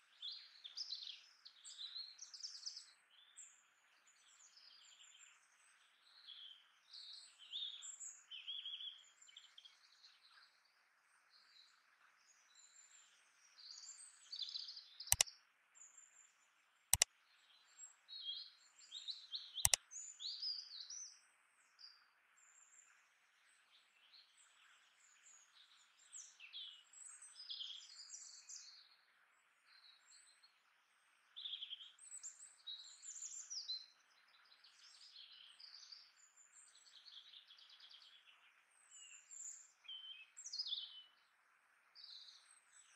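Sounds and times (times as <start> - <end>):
small birds chirping: 31.0 - 41.3.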